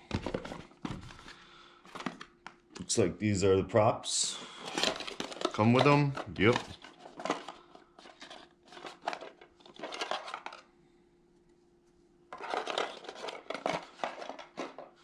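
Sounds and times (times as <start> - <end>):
packaging rustling: 4.5 - 10.7, 12.3 - 15.0.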